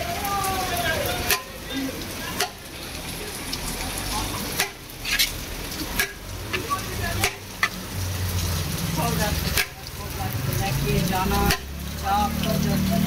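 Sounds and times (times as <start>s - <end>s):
rice rustling with ladle stirring: 4.6s - 7.4s.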